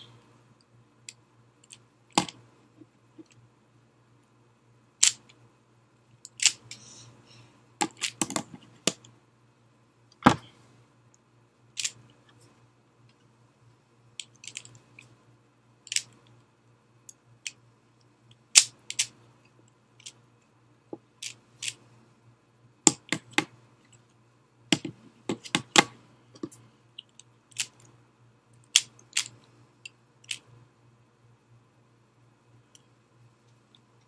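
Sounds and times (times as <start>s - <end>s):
faint low hum: 0.0s - 34.0s
puzzle cube plastic clicking: 1.1s - 2.4s, 5.0s - 5.4s, 6.2s - 6.8s, 7.8s - 9.1s, 11.8s - 12.0s, 14.2s - 15.1s, 15.9s - 16.2s, 18.6s - 19.2s, 22.9s - 23.5s, 24.7s - 27.9s, 28.6s - 30.5s.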